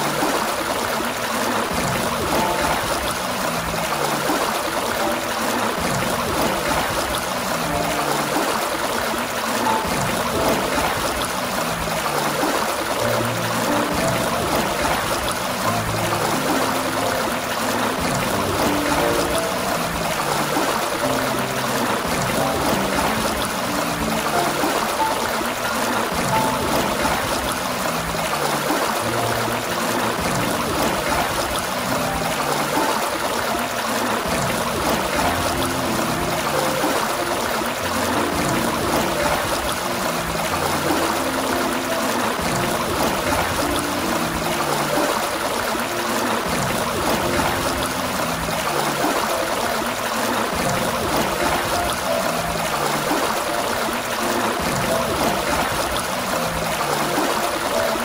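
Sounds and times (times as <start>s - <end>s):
fountain water gushing: 0.0s - 58.0s.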